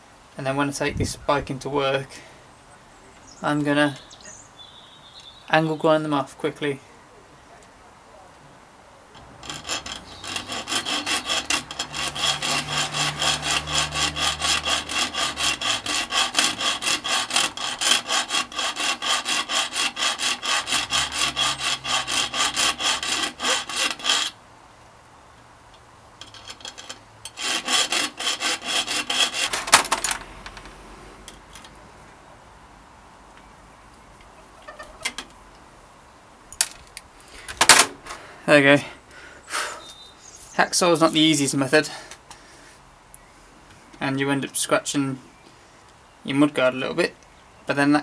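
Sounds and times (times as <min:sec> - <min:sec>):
hacksaw cutting metal: 0:09.2 - 0:24.4, 0:26.2 - 0:30.2.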